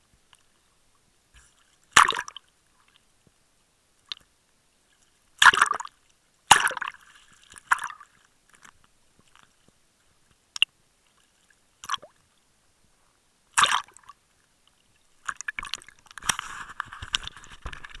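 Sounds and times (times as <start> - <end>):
sea water splashing: 5.4 - 8.7, 13.5 - 14.2.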